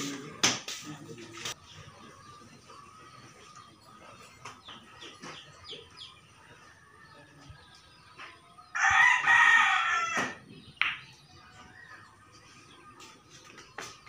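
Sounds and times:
rooster crowing: 0:08.7 - 0:10.4.

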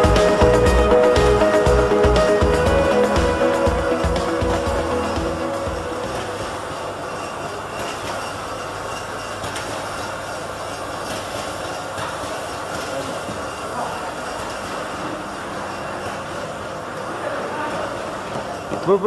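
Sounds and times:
conveyor line running: 0:00.0 - 0:19.0.

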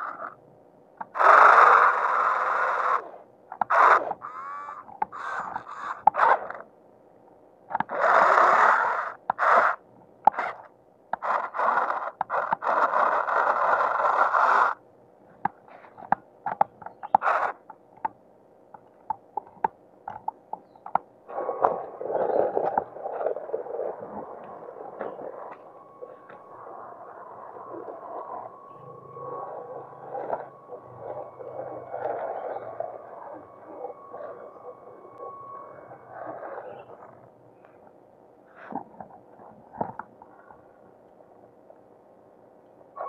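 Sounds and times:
electric motor and gears whirring: 0:01.0 - 0:06.7, 0:07.8 - 0:14.8, 0:17.0 - 0:17.7, 0:20.9 - 0:37.3.

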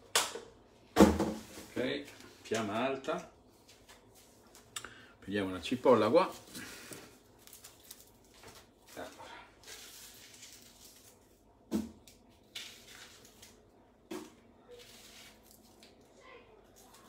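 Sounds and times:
kitchen knocks and rustles: 0:00.3 - 0:02.8, 0:14.0 - 0:15.4.

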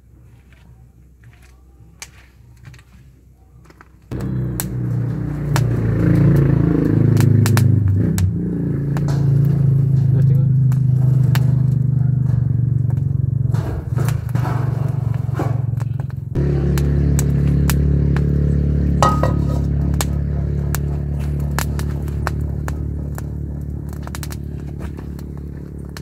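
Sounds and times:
wood fire crackling and popping: 0:03.6 - 0:26.0
loud steady low drone: 0:04.1 - 0:14.4, 0:16.2 - 0:26.0.

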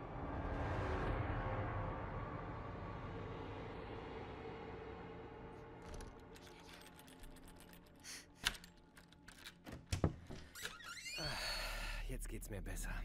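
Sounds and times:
keys rattling: 0:05.9 - 0:10.0
wooden door creaking open: 0:08.4 - 0:11.6.

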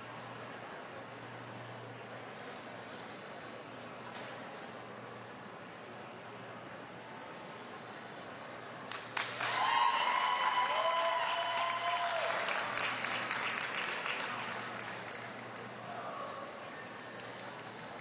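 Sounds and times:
spectators applauding: 0:08.9 - 0:15.9
spectators cheering: 0:09.3 - 0:15.0.

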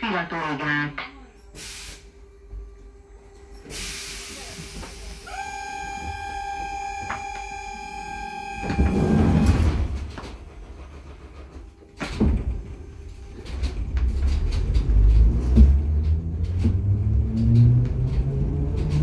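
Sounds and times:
train rumble and clatter: 0:00.0 - 0:19.0
air hissing: 0:01.5 - 0:02.2, 0:03.6 - 0:05.4.

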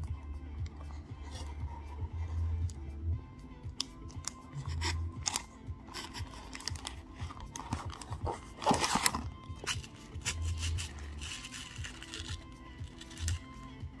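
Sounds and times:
foil wrapper crinkling: 0:06.0 - 0:13.5.

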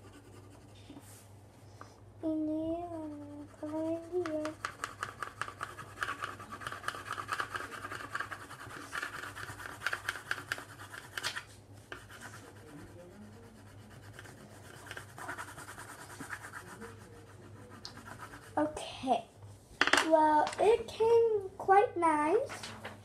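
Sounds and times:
colour pencil scratching on paper: 0:00.0 - 0:01.2, 0:02.8 - 0:18.9.

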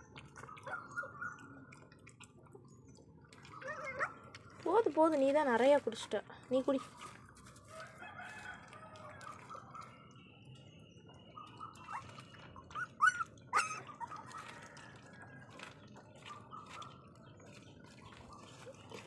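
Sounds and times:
puppies lapping milk: 0:00.0 - 0:19.0
puppy chirps: 0:11.3 - 0:14.4.

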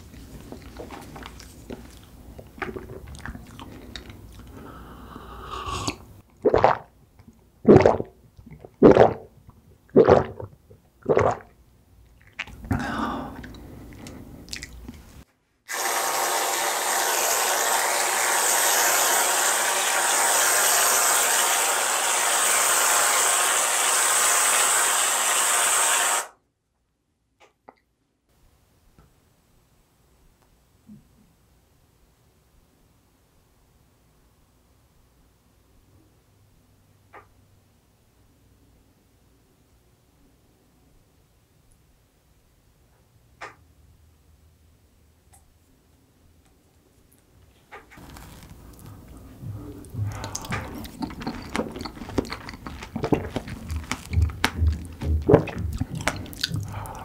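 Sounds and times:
mouth sounds of eating: 0:00.0 - 0:06.9, 0:12.1 - 0:15.2, 0:48.0 - 0:57.0
loud gulps: 0:02.4 - 0:06.9, 0:07.6 - 0:11.5, 0:12.3 - 0:15.0, 0:48.9 - 0:57.0
aerosol can spraying hiss: 0:15.7 - 0:26.3.

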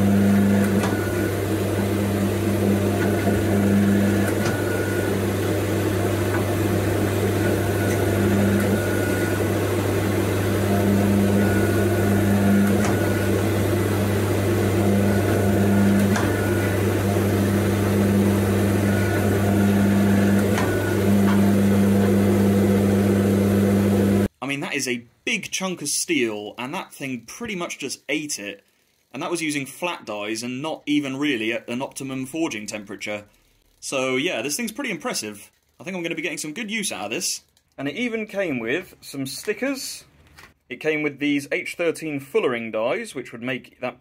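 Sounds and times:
higher hum: 0:00.0 - 0:24.3
hydraulic press low hum: 0:00.0 - 0:24.3.

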